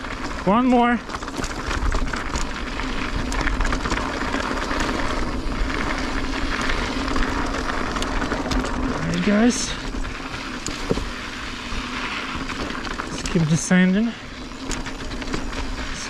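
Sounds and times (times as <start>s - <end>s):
bike rattling clicks: 0.0s - 16.0s
bike riding noise: 0.0s - 16.0s.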